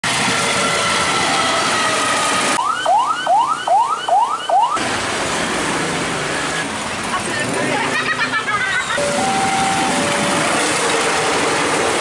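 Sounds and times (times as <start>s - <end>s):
train passing in rain: 0.0s - 2.6s, 4.8s - 12.0s
ambulance siren wailing: 0.1s - 4.8s, 9.0s - 12.0s.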